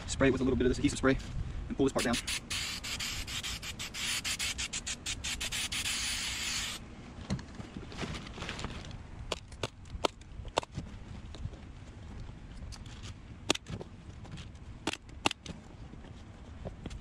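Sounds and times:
aerosol can hissing: 2.0 - 6.8.

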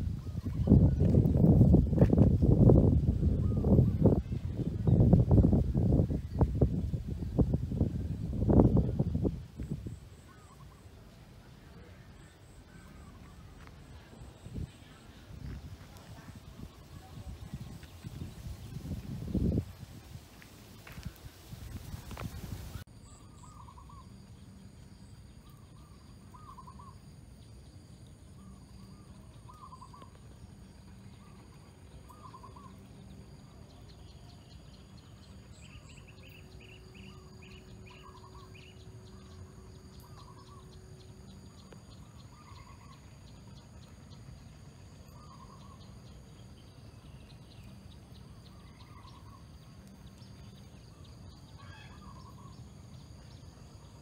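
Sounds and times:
steady high-pitched hum: 0.0 - 54.0
higher bird chirps: 33.8 - 43.6.

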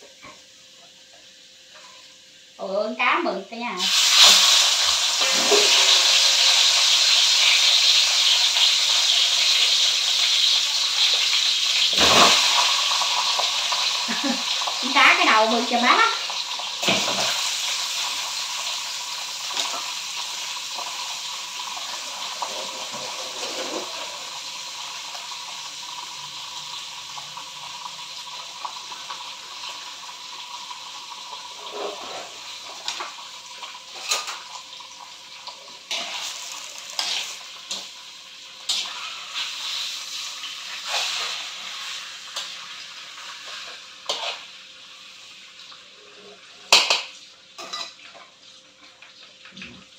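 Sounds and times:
fish sizzling in hot oil: 0.0 - 49.9
spatula scraping wok: 3.8 - 13.5, 21.6 - 24.3, 31.4 - 33.2, 33.8 - 34.5, 35.4 - 44.5, 47.6 - 48.2.

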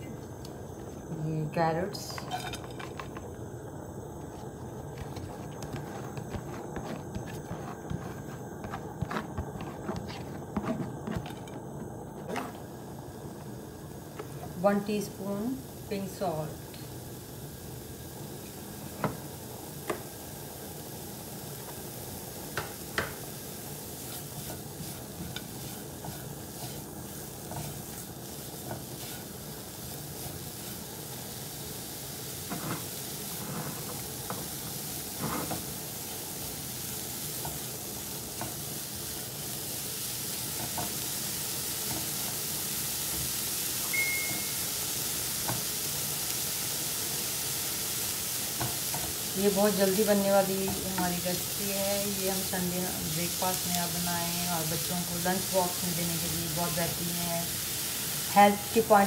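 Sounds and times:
carrots sizzling in oil: 1.1 - 59.0
spatula tapping and scraping pan: 24.1 - 28.0.

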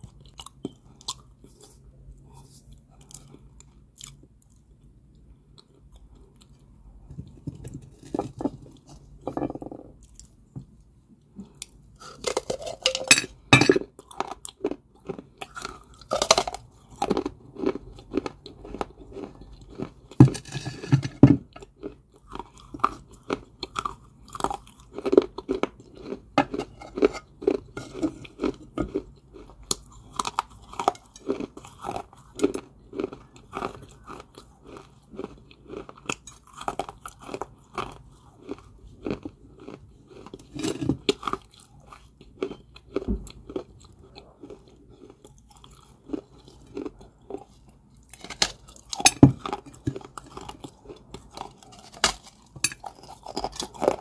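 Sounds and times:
clay balls crunching in chewing: 0.0 - 10.4, 11.2 - 54.0.

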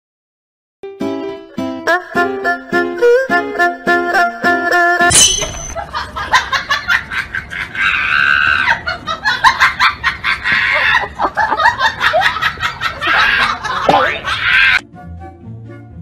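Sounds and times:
people laughing: 5.8 - 14.8.

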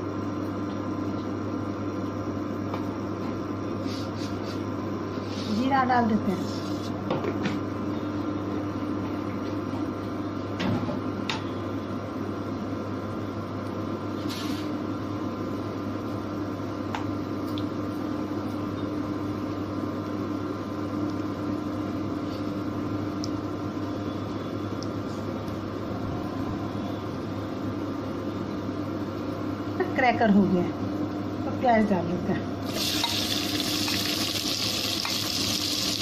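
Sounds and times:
steady hum: 0.0 - 36.0
seeds sizzling in hot oil: 14.2 - 14.7, 32.6 - 36.0.

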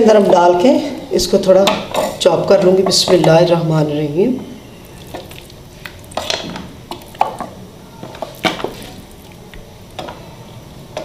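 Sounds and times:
wooden spoon scraping metal pot: 4.9 - 9.4.

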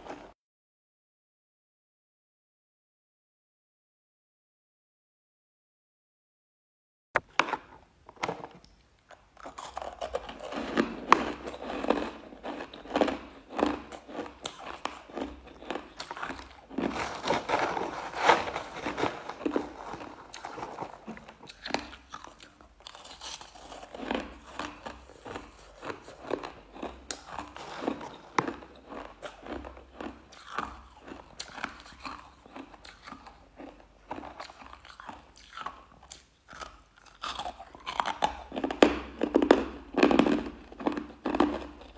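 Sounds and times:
crunching and chewing ice: 0.0 - 0.3, 7.6 - 41.9.

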